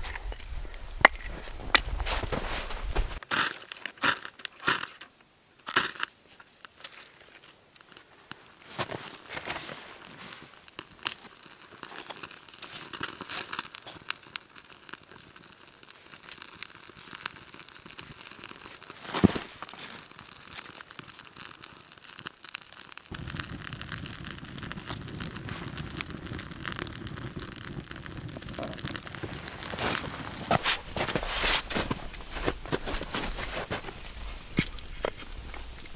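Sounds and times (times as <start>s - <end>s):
campfire crackling and popping: 0.0s - 4.9s, 5.6s - 35.9s
bark crinkling: 24.6s - 35.9s.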